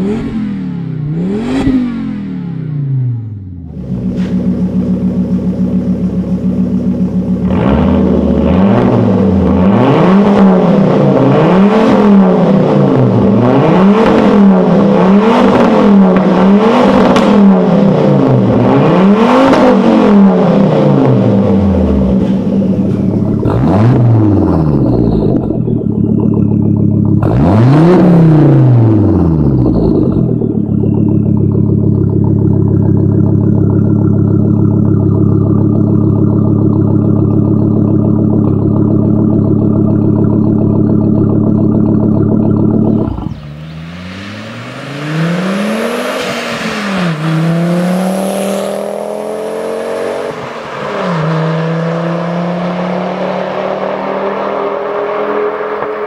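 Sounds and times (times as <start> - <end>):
car engine idling: 0.0 - 9.7, 19.8 - 54.1
car engine revving: 0.0 - 56.0.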